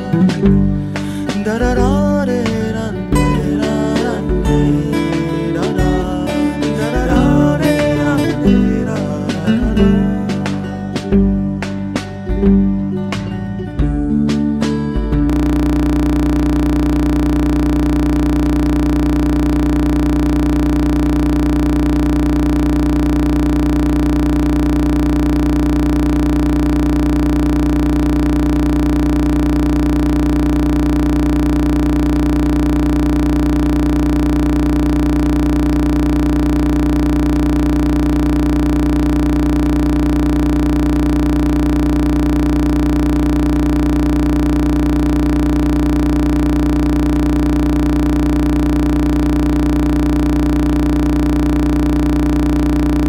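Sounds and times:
low hum: 0.0 - 12.6, 14.8 - 53.0
steady drone of held tones: 0.0 - 13.1, 14.8 - 53.0
strummed guitar music: 0.0 - 16.5.

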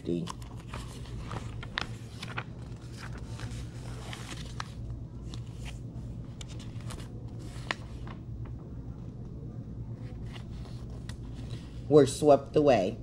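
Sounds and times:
steady low hum: 0.0 - 13.0
book pages rustling: 0.1 - 8.6, 10.0 - 11.9.

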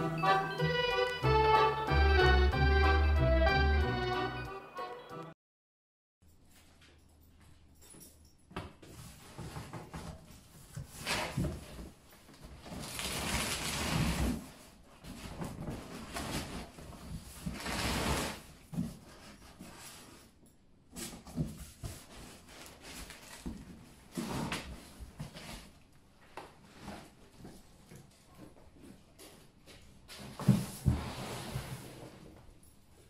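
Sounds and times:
cardboard boxes scraping on concrete: 12.7 - 20.1, 30.2 - 32.3.

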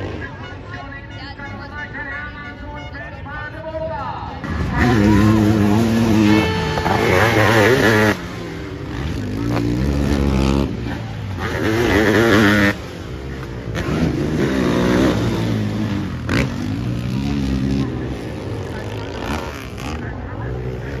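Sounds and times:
motocross engines revving past: 4.3 - 21.0.

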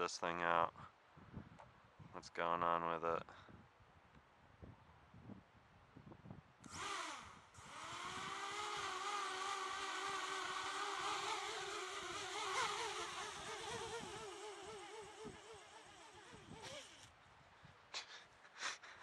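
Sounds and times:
quadcopter motors whining: 6.6 - 17.1.

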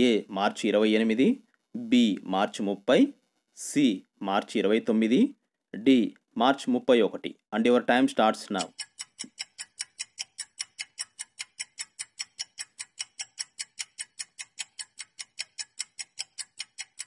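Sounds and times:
clock-like timer ticks: 8.4 - 17.0.

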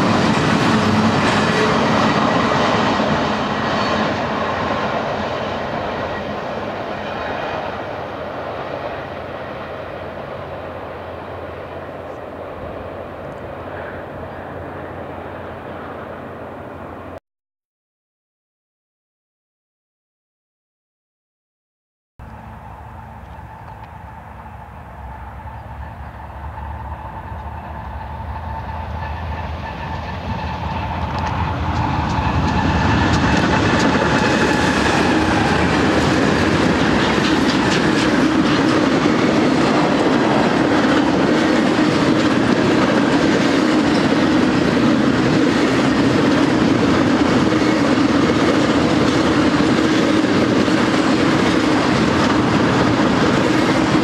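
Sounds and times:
freight train rumble: 0.0 - 17.2, 22.2 - 54.0
wheel clatter on rails: 29.9 - 54.0.

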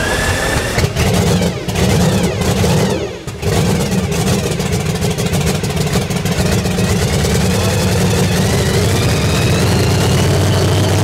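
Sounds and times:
loud rough race car engine: 0.0 - 11.0.

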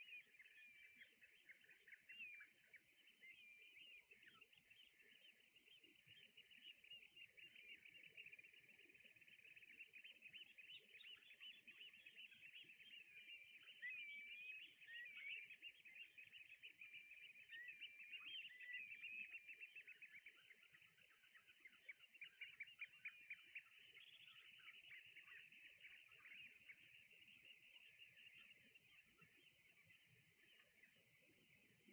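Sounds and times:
chatter of bird calls: 0.0 - 31.9.

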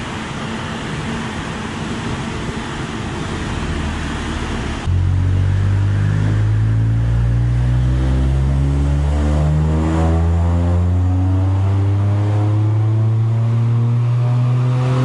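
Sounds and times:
steady rushing noise: 0.0 - 9.1
car exhaust revving: 2.5 - 15.0.

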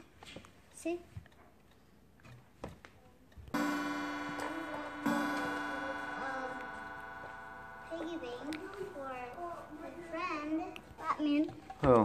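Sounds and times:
chime ringing: 3.6 - 11.8
child's voice: 7.8 - 11.6.

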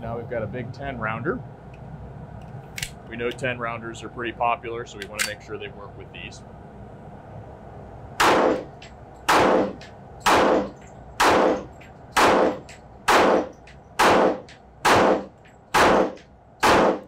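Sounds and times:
pistol shots: 8.2 - 8.7, 9.3 - 17.0.

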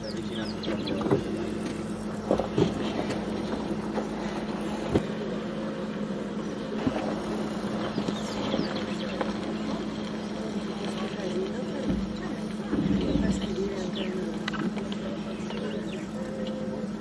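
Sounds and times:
vehicle engine idling: 0.0 - 17.0.

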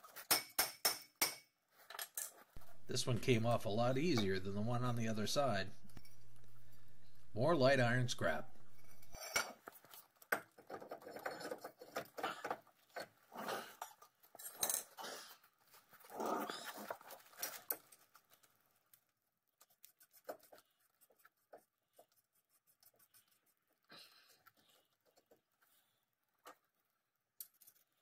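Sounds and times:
metal scraping and clinking: 8.5 - 10.0.

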